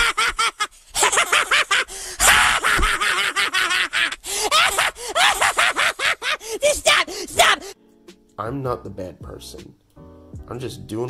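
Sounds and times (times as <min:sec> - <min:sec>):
cartoon children gasping: 0:06.3 - 0:07.8.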